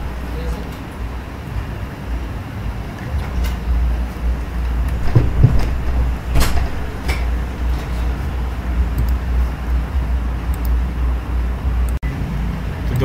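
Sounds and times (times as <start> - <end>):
low background rumble: 0.0 - 13.0
clicks and knocks: 4.7 - 8.2.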